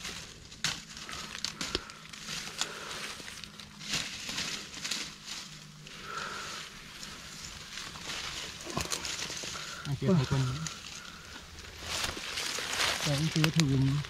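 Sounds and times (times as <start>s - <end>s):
dry leaves rustling and crackling: 0.0s - 14.0s.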